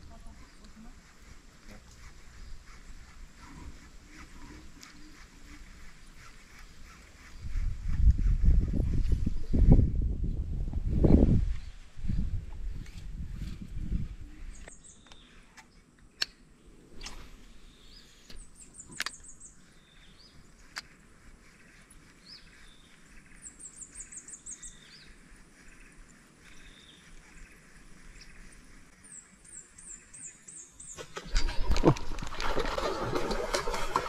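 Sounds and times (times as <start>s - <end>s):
birds singing: 14.4s - 16.4s, 17.0s - 32.0s
fish splashing at water surface: 31.0s - 34.0s.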